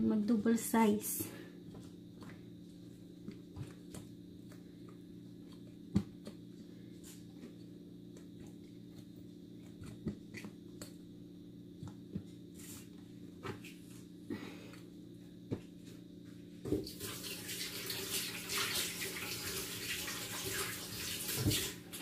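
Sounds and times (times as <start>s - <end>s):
steady low hum: 0.0s - 16.8s.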